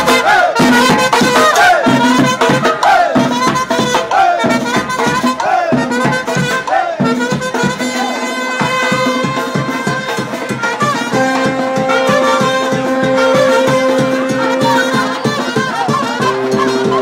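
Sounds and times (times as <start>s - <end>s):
marching band playing latin music: 0.0s - 17.0s.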